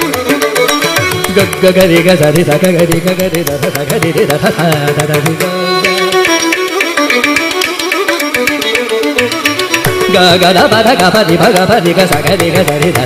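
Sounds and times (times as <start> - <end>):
violin melody: 0.0 - 13.0
man singing: 1.2 - 6.3, 9.8 - 13.0.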